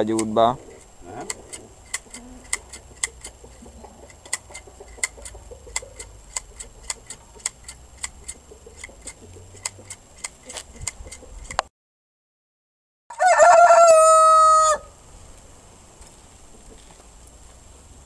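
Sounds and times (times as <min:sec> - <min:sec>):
rapid ticking: 0:00.0 - 0:11.2.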